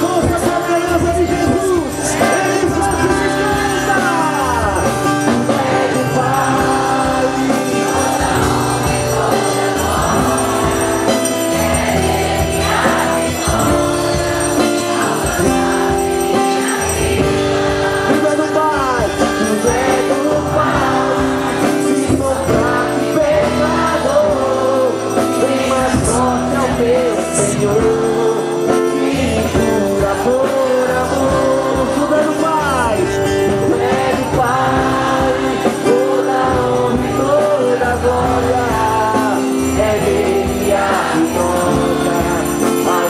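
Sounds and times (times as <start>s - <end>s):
worship singing: 0.0s - 43.0s.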